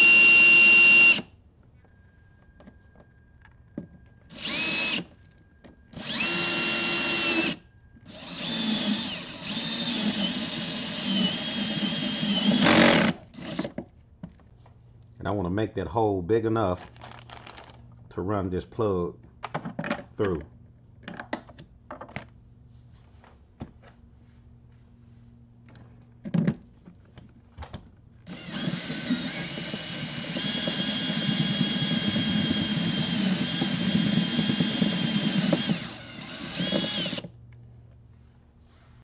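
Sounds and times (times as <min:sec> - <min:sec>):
cordless drill whining: 0:00.0 - 0:01.3, 0:04.2 - 0:05.2, 0:05.9 - 0:13.7, 0:28.3 - 0:37.3.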